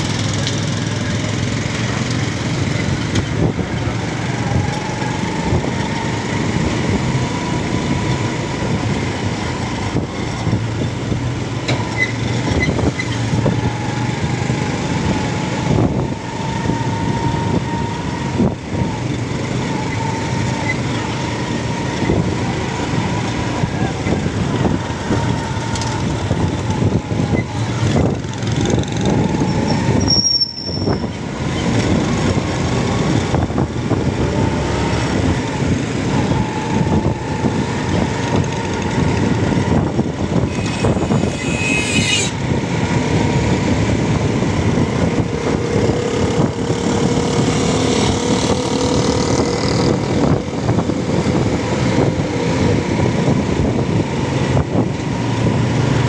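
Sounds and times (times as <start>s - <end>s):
motorcycle engine running: 0.0s - 11.6s, 42.4s - 56.0s
road and traffic noise: 0.0s - 56.0s
high-pitched squeal: 19.5s - 31.8s, 34.4s - 42.6s.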